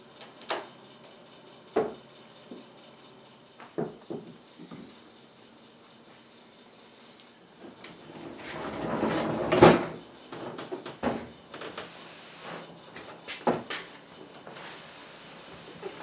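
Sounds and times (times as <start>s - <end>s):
table scraping on workbench: 8.1s - 10.0s.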